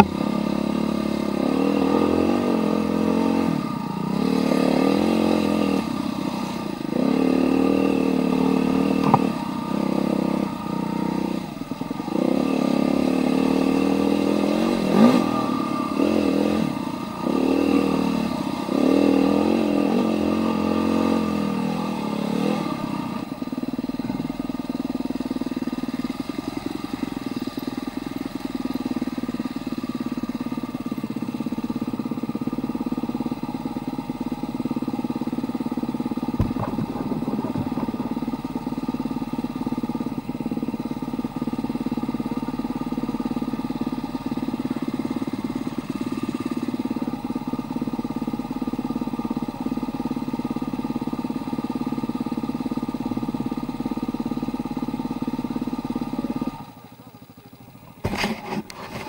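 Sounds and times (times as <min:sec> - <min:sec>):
dirt bike engine revving: 0:00.0 - 0:23.3, 0:34.6 - 0:41.3
sharp knock: 0:09.0 - 0:09.4, 0:36.4 - 0:38.3.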